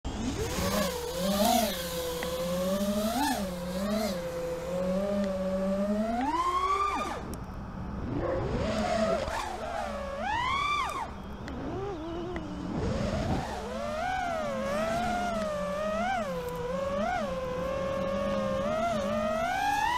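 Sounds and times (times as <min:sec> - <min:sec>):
drone motors whining: 0:00.1 - 0:19.9.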